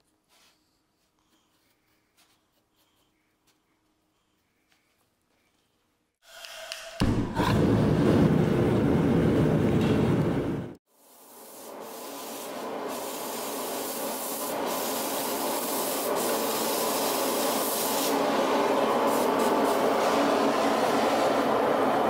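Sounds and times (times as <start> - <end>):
forge burner roar: 7.0 - 10.8.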